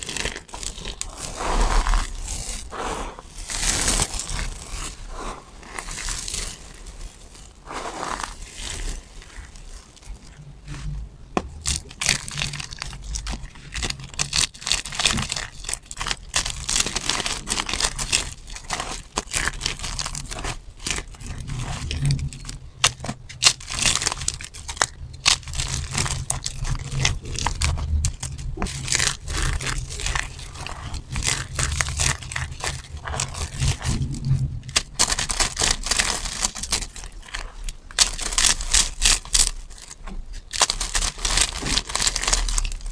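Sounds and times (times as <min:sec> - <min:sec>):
dry soap crunching by hand: 0:00.0 - 0:42.9.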